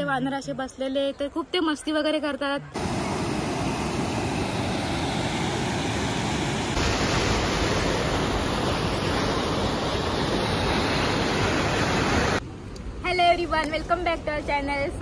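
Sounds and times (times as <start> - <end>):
river water rushing over rocks: 2.8 - 12.4.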